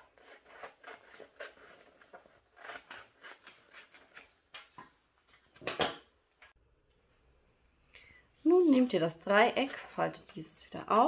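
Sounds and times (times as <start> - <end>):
scissors snipping paper: 0.0 - 4.5.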